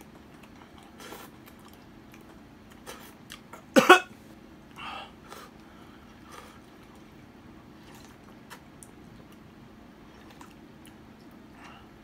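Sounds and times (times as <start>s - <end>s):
man coughing: 3.7s - 4.1s
soft breath: 4.8s - 6.7s.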